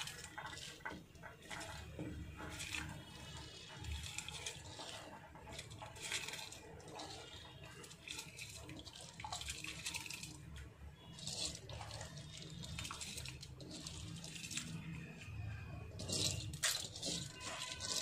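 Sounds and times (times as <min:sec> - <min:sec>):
rice splashing into boiling water: 0:00.0 - 0:15.1
rice sliding off metal plate: 0:16.0 - 0:18.0.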